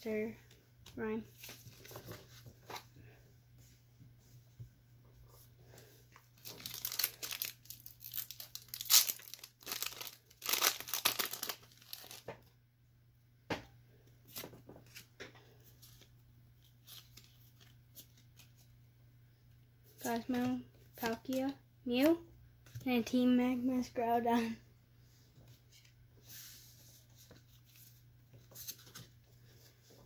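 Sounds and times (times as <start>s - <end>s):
foil wrapper tearing and crinkling: 6.4s - 12.3s.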